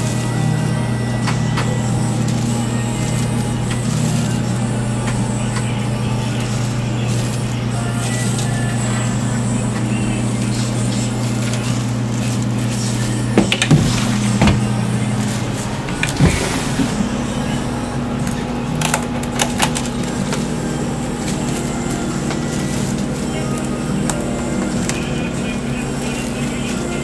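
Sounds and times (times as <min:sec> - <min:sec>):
low mechanical hum: 0:00.0 - 0:27.0.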